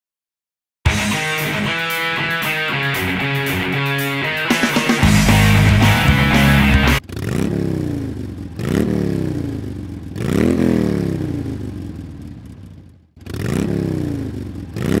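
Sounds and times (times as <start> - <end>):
motorcycle engine revving: 3.0 - 15.0.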